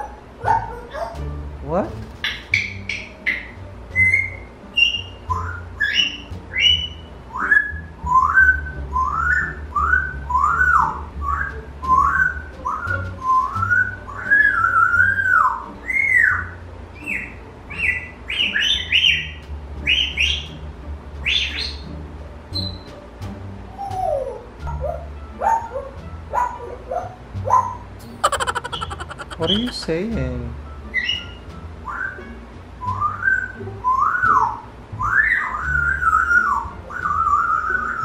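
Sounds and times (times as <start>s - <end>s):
parrot chirps and squeaks: 28.1s - 29.9s
parrot whistling: 28.2s - 29.9s.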